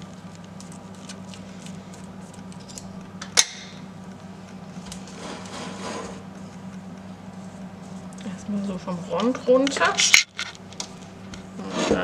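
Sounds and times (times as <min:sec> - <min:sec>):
utensil scraping a pot: 0:05.1 - 0:06.2, 0:11.6 - 0:12.0.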